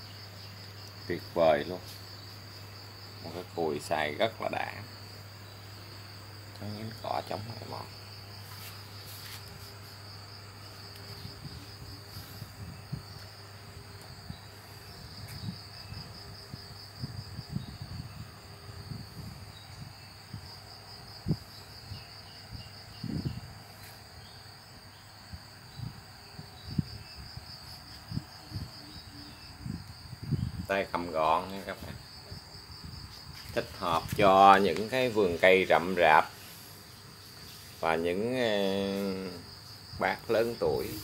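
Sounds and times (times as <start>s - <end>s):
high-pitched insect chirring: 18.8s - 41.0s.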